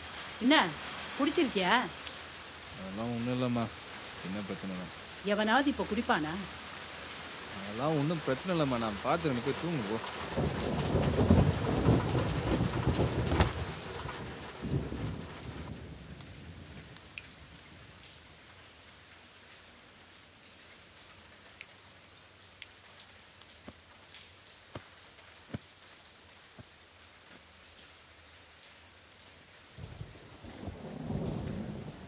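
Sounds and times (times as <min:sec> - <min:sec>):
steady light rain: 0:00.0 - 0:32.0
heavy thunder rumbling: 0:07.4 - 0:17.6, 0:29.8 - 0:32.0.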